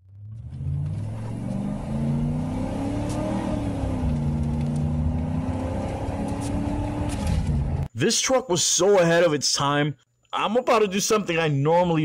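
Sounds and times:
engine accelerating hard: 0.0 - 7.9.

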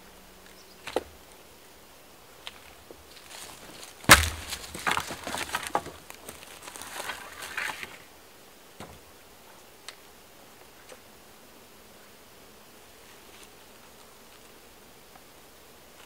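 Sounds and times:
dry wood cracking: 2.4 - 8.0
twigs snapping and crackling: 2.4 - 8.0.

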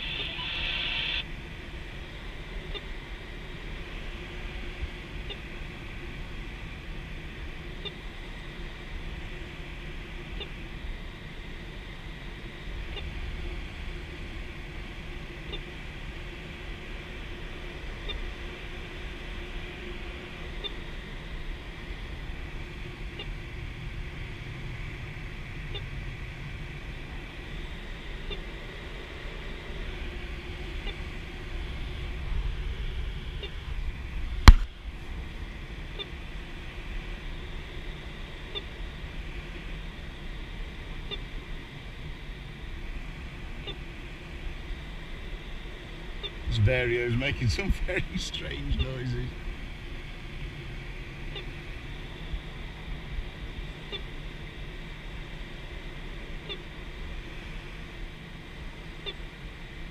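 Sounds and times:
variometer chirps: 0.0 - 1.2
variometer high tone: 0.0 - 1.3, 46.2 - 49.4
sharp knock: 34.5 - 34.7.

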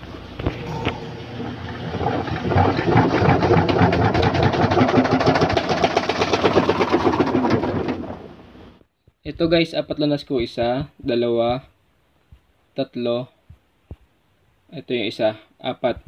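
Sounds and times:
washing machine drum clattering: 0.9 - 8.2.

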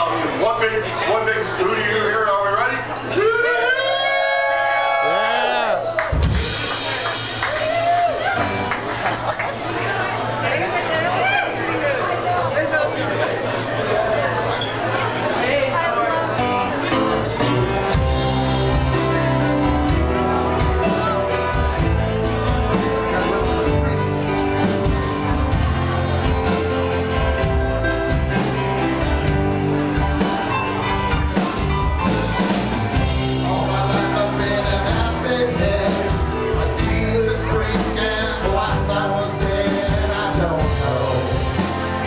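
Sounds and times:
bass guitar: 0.0 - 42.0
drums: 0.0 - 42.0
acoustic guitar: 12.9 - 42.0
man singing into a microphone: 33.4 - 41.8.

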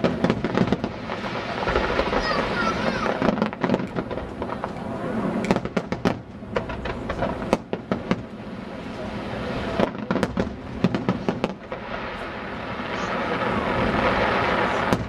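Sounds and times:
firework shells bursting: 0.0 - 8.4.

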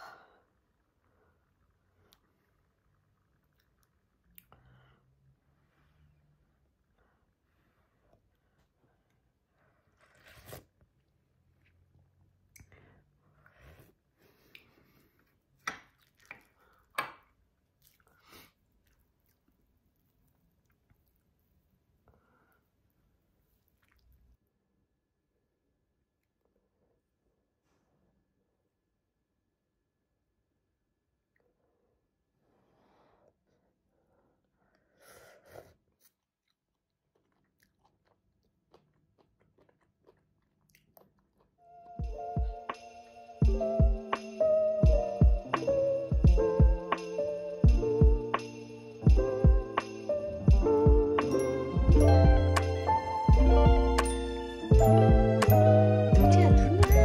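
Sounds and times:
slurping soup from a spoon: 9.8 - 10.8
person chewing food: 14.3 - 21.3, 23.4 - 24.4, 35.9 - 42.0
music with low beat: 42.0 - 57.0.

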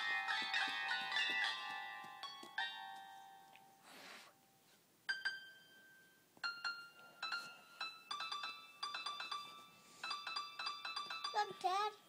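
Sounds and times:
piano app notes and chords: 5.1 - 12.0.

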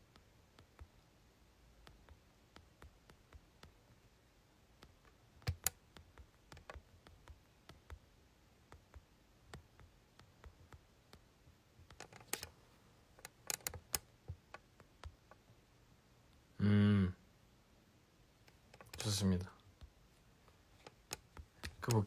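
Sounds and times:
fingers tapping smartphone: 0.0 - 12.5, 13.2 - 15.5, 19.7 - 22.0.

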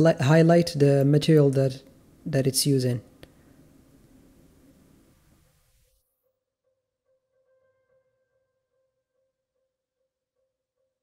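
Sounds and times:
faint steady hum: 0.0 - 6.0.

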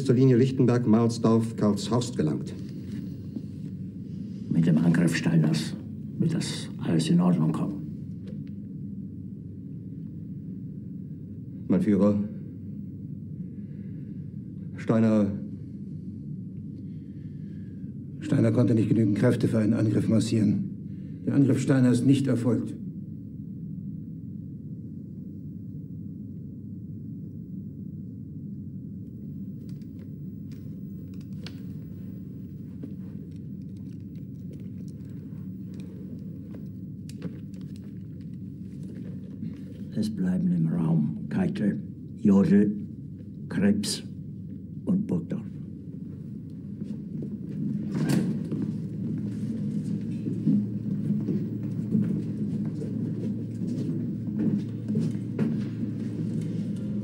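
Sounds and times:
low room tone rumble: 0.0 - 57.0
footsteps and shuffling: 29.2 - 40.2, 45.5 - 57.0.

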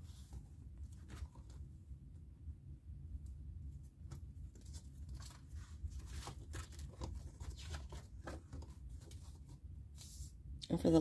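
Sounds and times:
paper pages rustling: 0.0 - 1.7, 3.9 - 10.4
low steady hum: 0.0 - 11.0.

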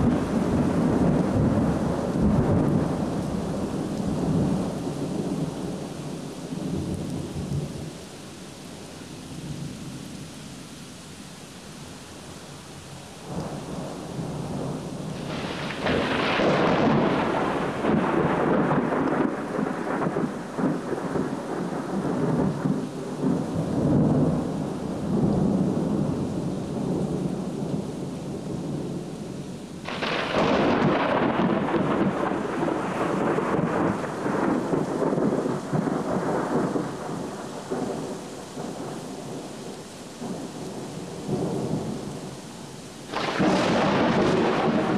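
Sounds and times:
thunder rumbling and cracking: 0.0 - 4.9, 13.3 - 26.2, 29.9 - 39.4, 43.1 - 44.9
steady rain: 0.0 - 44.9.

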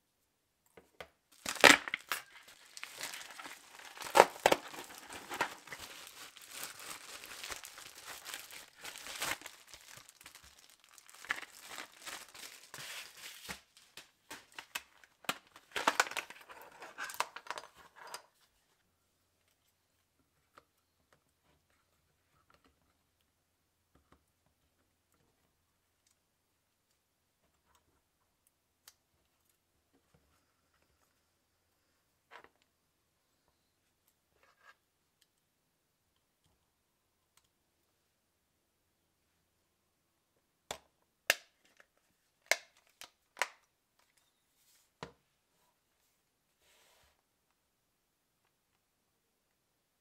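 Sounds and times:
plastic packaging crinkling: 1.3 - 18.0.

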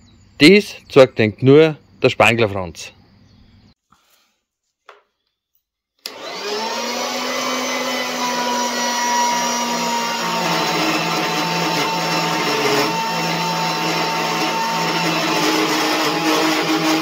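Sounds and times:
band saw motor whine cutting metal: 6.1 - 17.0.

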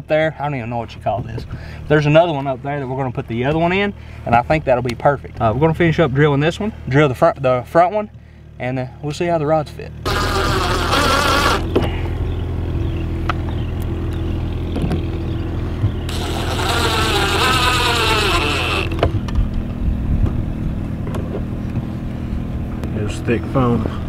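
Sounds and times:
steady low hum: 0.0 - 24.0
cordless drill driving into panel: 10.1 - 11.8, 16.1 - 19.2.

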